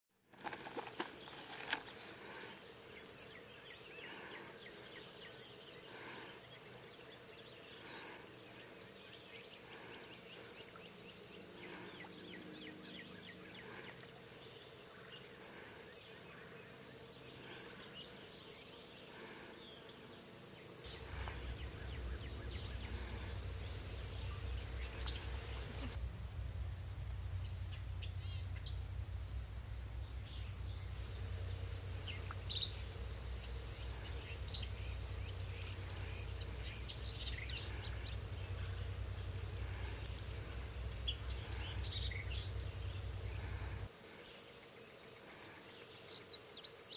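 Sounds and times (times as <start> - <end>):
insects buzzing: 0.2 - 26.0, 30.7 - 46.9
high insect trill: 0.3 - 26.0, 30.9 - 46.9
insect chirps: 0.3 - 26.0, 30.8 - 46.9.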